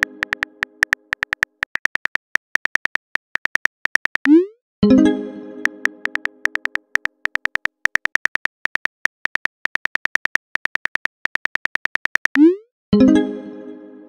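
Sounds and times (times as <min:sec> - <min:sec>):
phone keyboard clicks: 0:00.0 - 0:04.3, 0:05.6 - 0:12.4.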